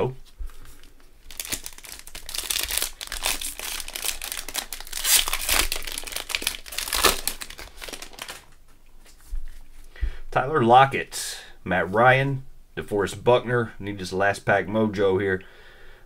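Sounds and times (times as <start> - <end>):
plastic wrapper crinkling and tearing: 0.7 - 8.8.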